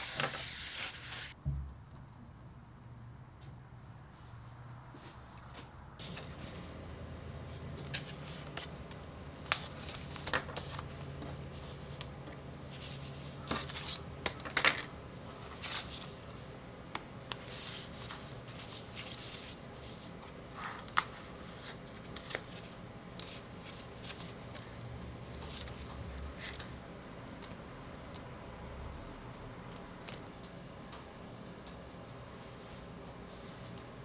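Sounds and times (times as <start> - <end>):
notebook pages turning: 0.0 - 1.4, 9.4 - 12.1, 12.7 - 14.6, 17.3 - 28.2
paper rustling: 0.0 - 1.4, 9.4 - 14.6, 17.3 - 28.2.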